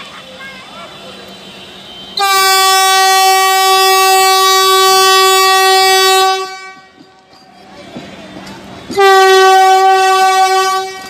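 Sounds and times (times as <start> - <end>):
train horn blast: 1.3 - 7.0, 8.9 - 11.0.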